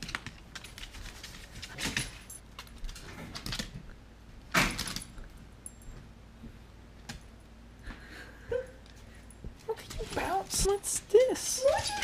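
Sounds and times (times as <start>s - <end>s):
dog claws clicking on hardwood: 0.0s - 3.9s.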